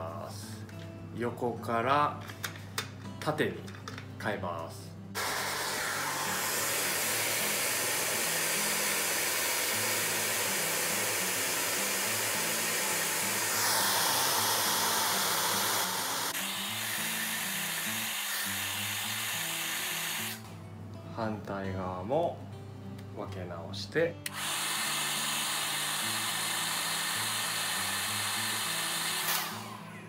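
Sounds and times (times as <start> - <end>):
hair dryer blowing: 5.2 - 20.5, 24.3 - 30.0.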